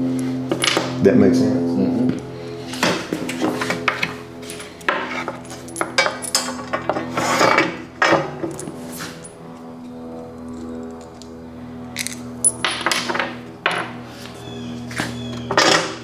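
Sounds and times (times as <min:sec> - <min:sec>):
metal bolts clinking on steel plate: 0:04.9 - 0:09.3
metal plate shifting on wooden bench: 0:15.0 - 0:16.0.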